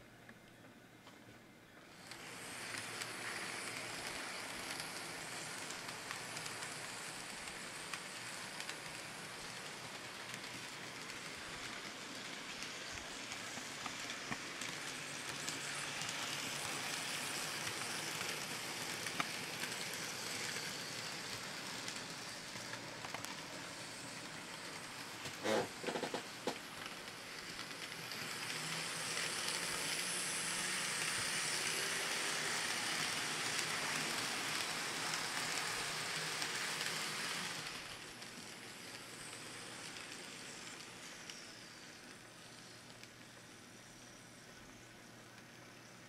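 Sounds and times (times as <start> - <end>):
model train wheels on rail: 0.0 - 46.0.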